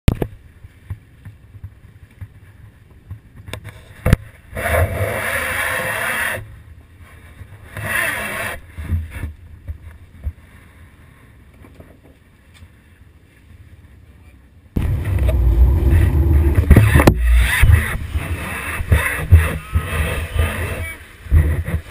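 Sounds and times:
boat engine rumble: 8.6 - 21.9
wind on microphone: 14.8 - 21.9.

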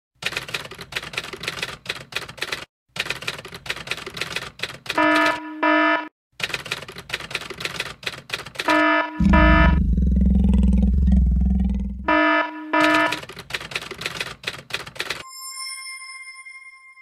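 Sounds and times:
typewriter keystroke clicks: 6.4 - 8.7, 12.8 - 15.2
loud buzzer tones: 8.7 - 10.2, 11.2 - 13.2.

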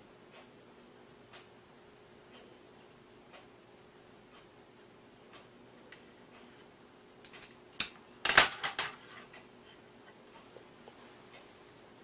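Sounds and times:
chopsticks clicking on plates: 7.2 - 9.5.

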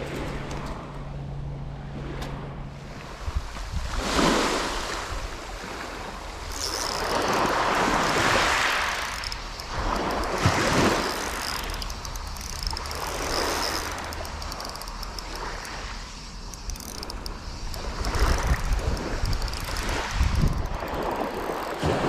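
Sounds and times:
small waves on shingle beach: 2.9 - 11.8, 19.8 - 22.0
wind buffeting microphone: 3.1 - 4.2, 16.7 - 22.0.

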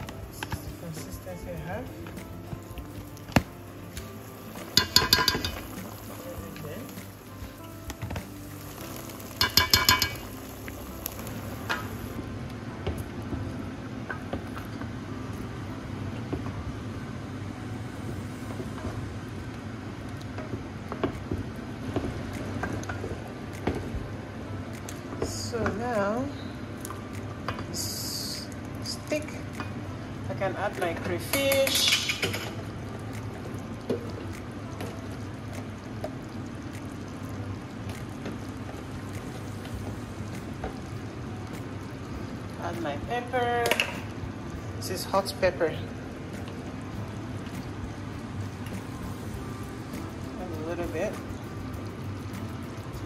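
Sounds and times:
soup bubbling in a pot: 0.1 - 53.0
spoon knocking against metal pot: 4.7 - 5.7, 9.4 - 10.3.

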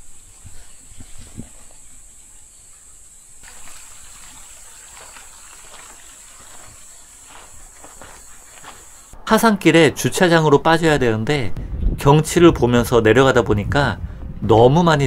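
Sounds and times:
high-pitched insect chorus: 0.3 - 9.2
rough rustling: 3.4 - 9.2
soft footsteps: 3.4 - 9.2.

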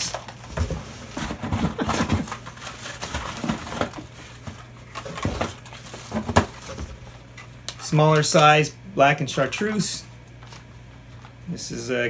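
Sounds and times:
packaging rustling: 0.0 - 8.4.

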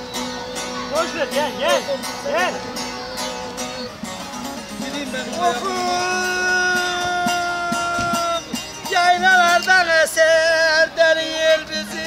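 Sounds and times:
long-necked lute plucked: 0.0 - 12.0.

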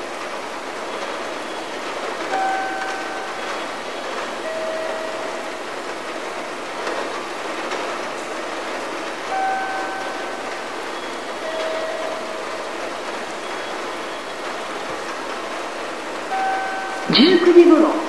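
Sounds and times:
platform ambience hiss: 0.0 - 18.0
two-note chime: 2.3 - 3.5, 9.3 - 10.4, 16.3 - 17.4.

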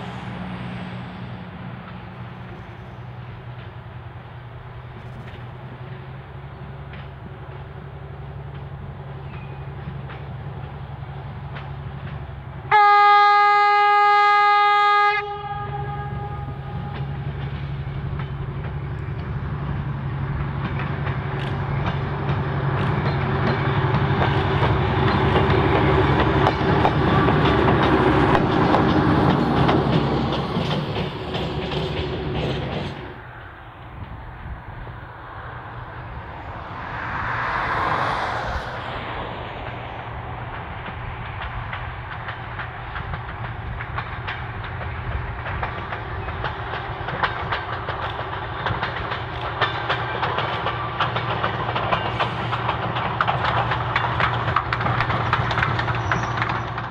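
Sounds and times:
train diesel engine running: 0.0 - 56.9
train horn blast: 12.7 - 17.3
wheels clicking over rails: 16.5 - 34.6, 38.8 - 56.9.

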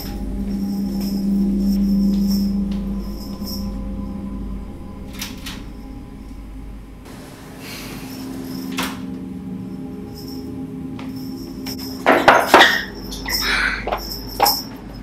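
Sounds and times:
low steady drone: 0.0 - 15.0
door swinging hiss: 7.1 - 9.2.

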